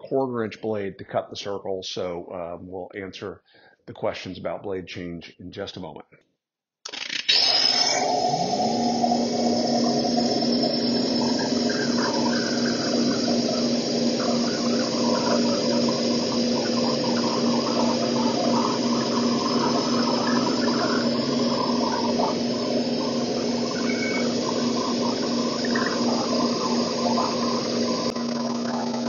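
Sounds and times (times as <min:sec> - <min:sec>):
bandsaw motor hum: 0:06.9 - 0:29.0.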